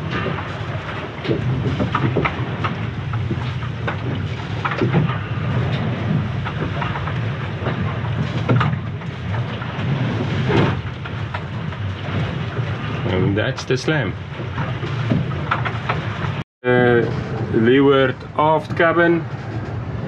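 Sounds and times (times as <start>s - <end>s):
sea rushing along hull: 0.0s - 20.0s
waves thudding against hull: 0.0s - 20.0s.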